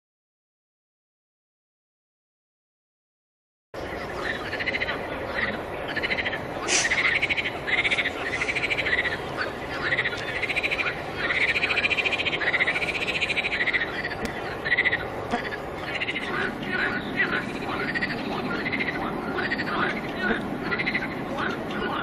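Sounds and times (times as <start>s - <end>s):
frogs croaking: 3.8s - 22.0s
steady background hiss: 3.8s - 22.0s.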